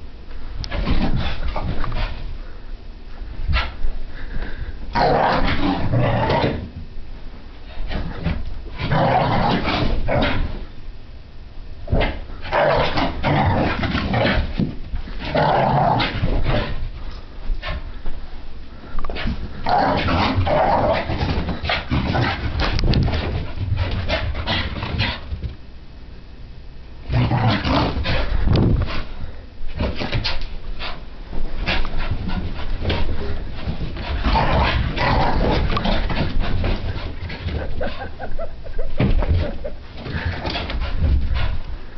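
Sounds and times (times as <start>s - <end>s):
puppy growling: 19.6s - 23.2s, 27.1s - 28.4s, 33.0s - 38.5s.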